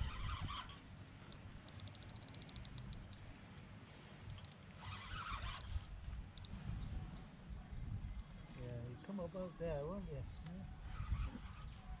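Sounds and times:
fishing reel clicking rapidly: 0.0 - 3.2, 4.3 - 8.4.

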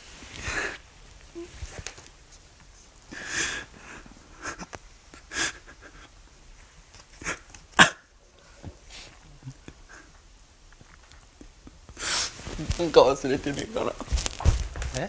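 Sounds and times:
man sobbing: 3.1 - 6.2, 7.1 - 8.1, 9.3 - 10.2
sniffles: 7.1 - 10.2, 11.4 - 12.6.

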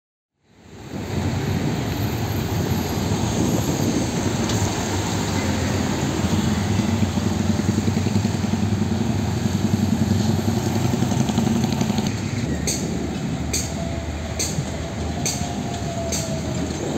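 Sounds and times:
truck diesel engine rumbling: 0.9 - 16.9
motor scooters running: 5.2 - 12.5.

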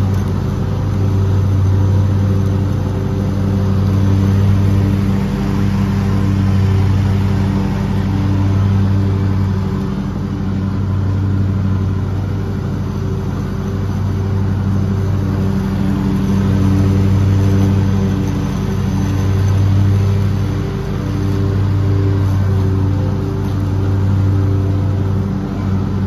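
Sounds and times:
lawn mower engine running: 0.0 - 26.0.

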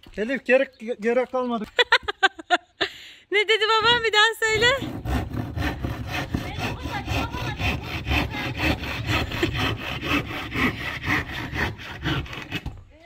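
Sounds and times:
hand saw cutting wood: 3.8 - 13.0.

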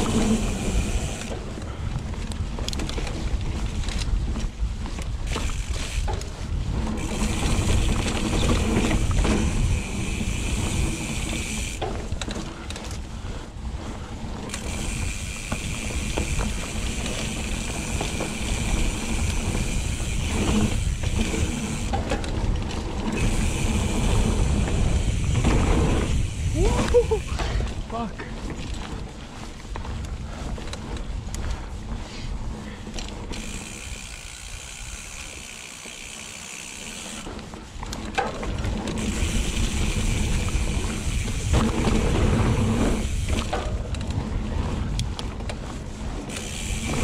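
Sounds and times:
rear hub freewheel buzz: 0.0 - 1.4, 5.3 - 11.9, 14.4 - 22.2, 22.8 - 27.3, 33.2 - 37.5, 38.8 - 43.9, 46.2 - 47.0
bike knocking and rattling: 0.0 - 47.0
bike tyres rumbling on dirt: 0.0 - 47.0.

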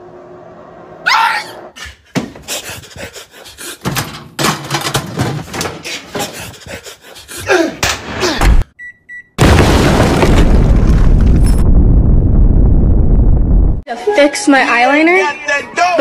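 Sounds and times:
short falling cries: 1.0 - 1.7
knocks and thuds: 3.8 - 6.5
microwave keypad beeps: 8.8 - 9.4.

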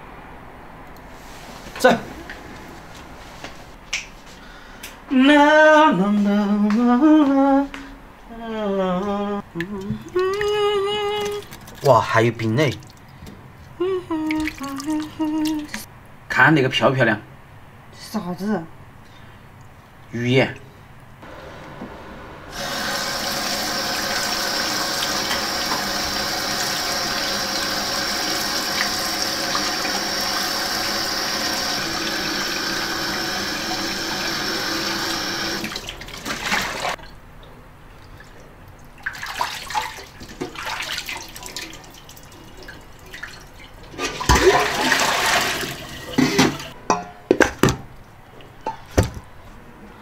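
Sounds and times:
tap water running into sink: 22.6 - 37.0
knocks and handling noises: 46.2 - 49.4.

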